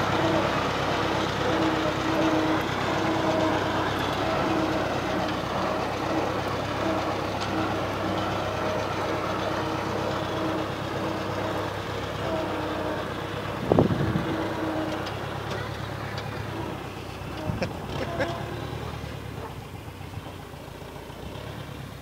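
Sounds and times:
tractor diesel engine running: 0:00.0 - 0:22.0.

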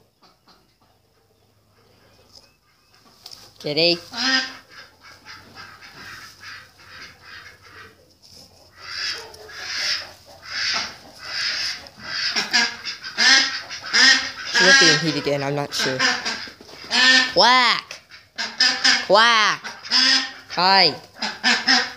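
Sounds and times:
duck quacking: 0:03.7 - 0:08.0, 0:08.8 - 0:21.9.

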